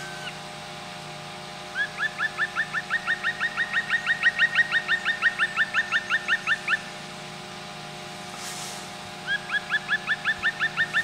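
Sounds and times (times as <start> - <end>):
faint steady hum: 0.0 - 11.0
woodpecker calling: 1.7 - 6.9, 9.2 - 11.0.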